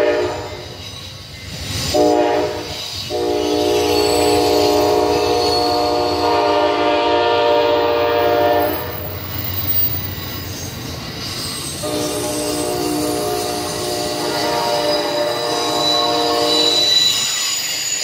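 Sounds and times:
train horn blasts: 0.0s - 0.7s, 1.9s - 9.0s, 11.8s - 17.3s
train wheels rumbling on rails: 0.0s - 18.0s.

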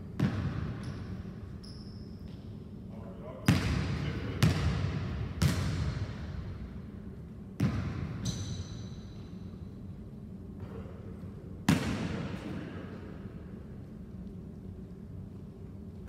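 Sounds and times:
basketball bouncing on wooden floor: 7.6s - 8.5s.

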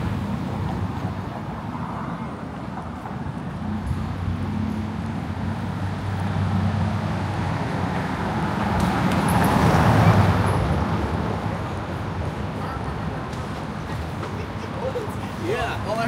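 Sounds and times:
passing vehicle road noise: 0.0s - 16.0s.

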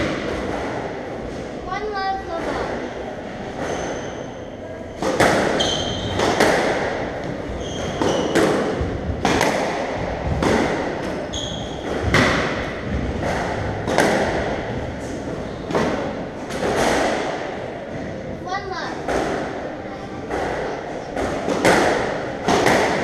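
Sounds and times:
squash ball hitting racquets and walls: 0.0s - 23.0s
shoes squeaking on wooden floor: 7.5s - 8.4s.

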